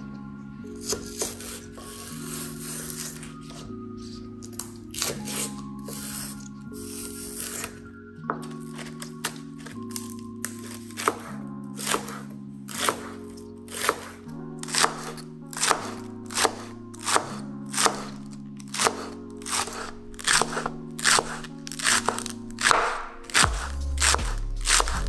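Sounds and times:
background music: 0.0s - 25.0s
knife slicing on cutting board: 10.0s - 25.0s.

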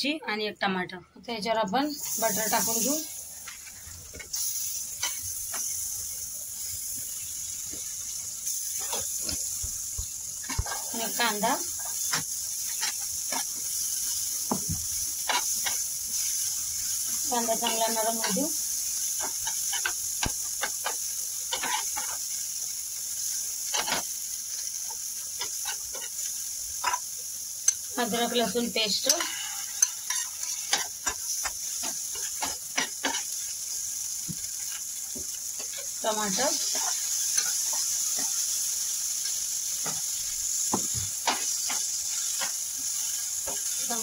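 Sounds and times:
butter sizzling on griddle: 1.9s - 44.0s
metal spatula scraping a pan: 19.2s - 22.2s, 28.9s - 33.4s, 35.6s - 38.5s.

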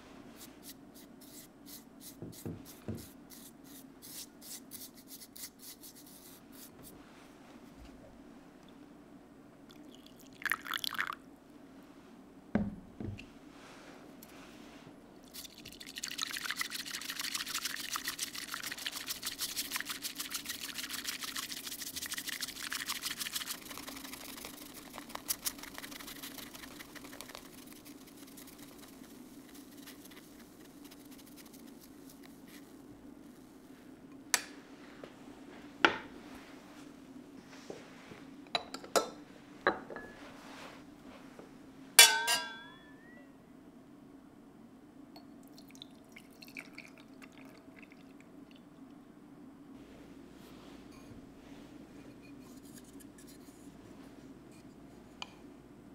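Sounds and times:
soft knocks: 12.5s - 13.2s
tea whisk frothing in a bowl: 15.3s - 32.8s
sharp ringing clink: 42.0s - 43.3s.

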